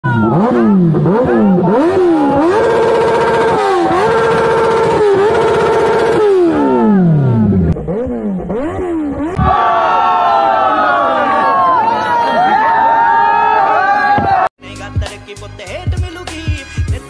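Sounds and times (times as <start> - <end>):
motorcycle engine revving: 0.1 - 10.2.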